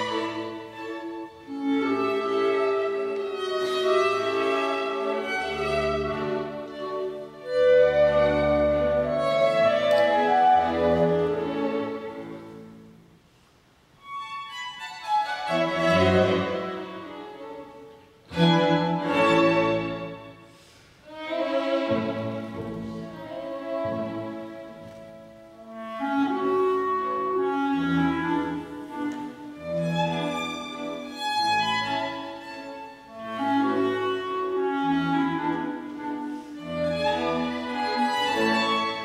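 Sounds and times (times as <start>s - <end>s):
clarinet and strings dance music: 0.0s - 12.6s, 21.1s - 39.0s.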